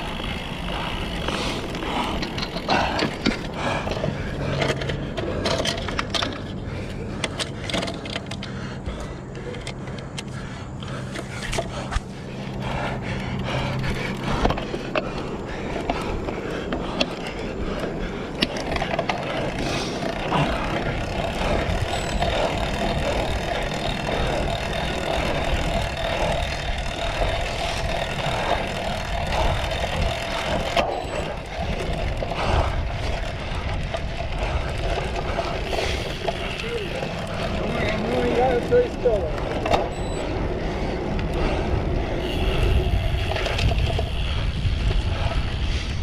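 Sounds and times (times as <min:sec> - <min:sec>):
bike frame rattling and clicking: 0:00.0 - 0:46.0
bike tyres rumbling: 0:00.0 - 0:46.0
wind on microphone: 0:15.4 - 0:46.0.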